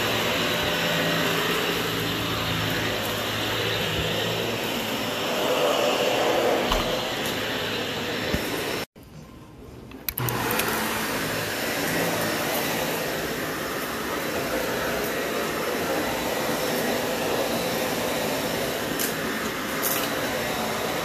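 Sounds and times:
vacuum cleaner running on carpet: 0.0s - 8.9s, 10.2s - 21.0s
clicks: 9.9s - 10.7s.

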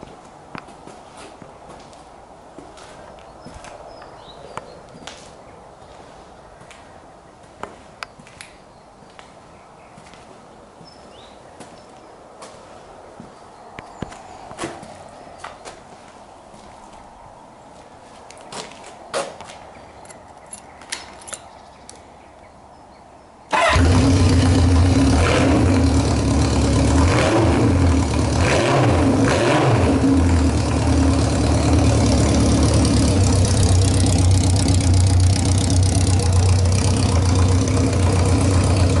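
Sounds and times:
motorcycle engine revving and idling: 23.5s - 39.0s.

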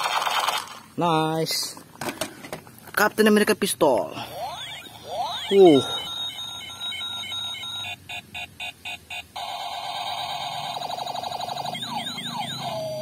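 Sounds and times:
fast-warbling electronic rattle: 4.4s - 6.7s, 9.4s - 13.0s
toy gun electronic beeps: 4.4s - 13.0s.

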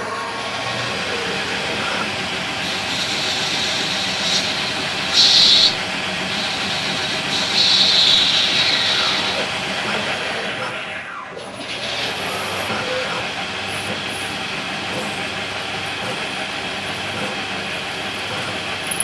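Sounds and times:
lathe spindle turning: 0.0s - 19.0s
tool cutting hiss: 1.0s - 10.1s.

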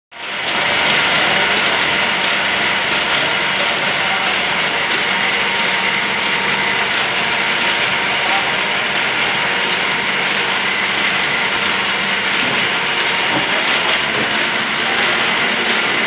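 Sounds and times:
paper folding machine running: 0.2s - 16.0s.

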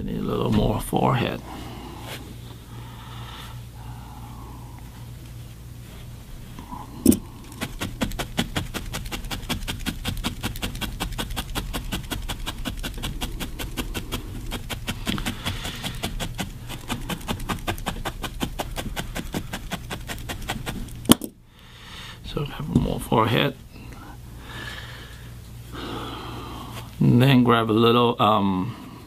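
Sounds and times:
low steady hum: 0.0s - 29.0s
felting needle clicking into wool: 7.1s - 21.2s.

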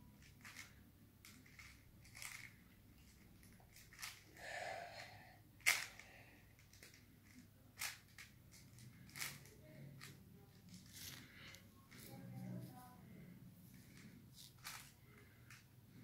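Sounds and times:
puzzle cube scraping turn: 0.2s - 4.3s, 5.6s - 12.1s, 13.8s - 15.6s.

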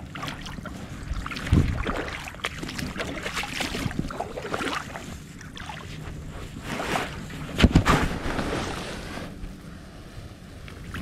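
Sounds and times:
wind on microphone: 0.0s - 11.0s
clothing rustling: 5.9s - 9.4s.

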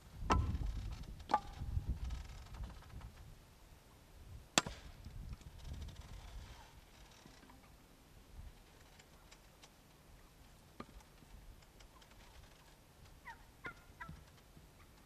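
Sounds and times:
turkeys gobbling: 13.2s - 14.3s.

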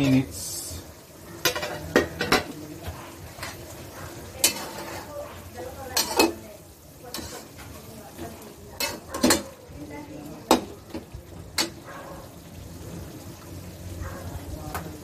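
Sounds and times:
low sizzle: 0.0s - 15.0s
metal spatula scraping a wok: 1.4s - 6.4s, 7.0s - 9.6s
spatula clinking against pan: 4.4s - 5.0s, 5.9s - 6.4s, 8.8s - 9.6s.

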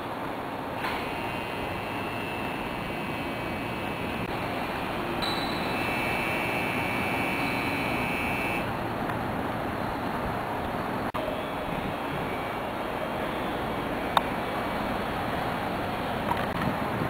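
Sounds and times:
motor vehicle noise: 0.0s - 17.0s
thin high whine: 0.8s - 8.9s.

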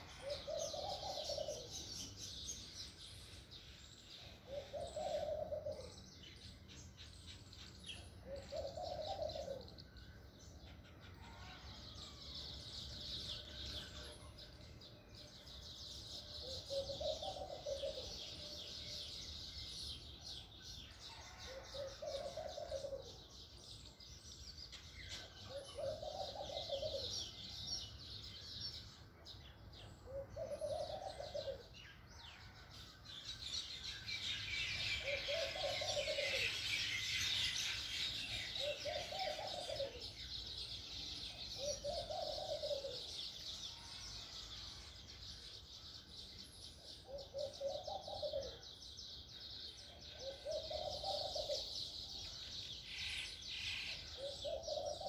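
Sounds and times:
low bird hooting call: 0.0s - 1.8s, 4.4s - 6.0s, 8.2s - 10.0s, 16.4s - 18.5s, 25.4s - 27.4s, 30.0s - 31.7s, 34.7s - 40.1s, 41.5s - 43.3s, 47.0s - 48.6s, 50.1s - 52.0s, 52.9s - 55.0s
small birds chirping: 33.2s - 55.0s.

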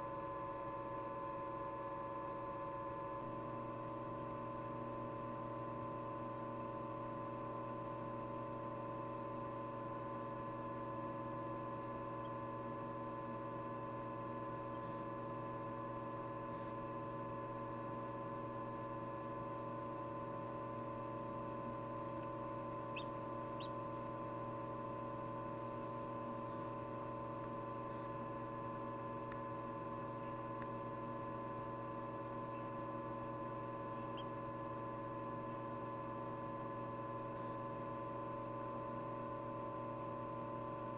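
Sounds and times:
incubator fan hum: 0.0s - 40.9s
chick peeping: 22.9s - 24.2s, 33.9s - 34.4s.

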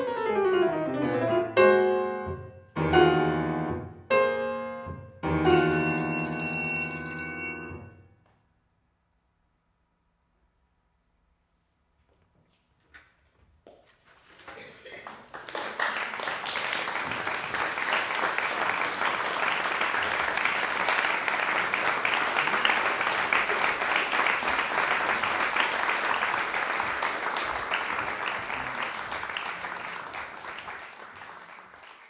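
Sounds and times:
audience applauding: 14.2s - 32.0s.

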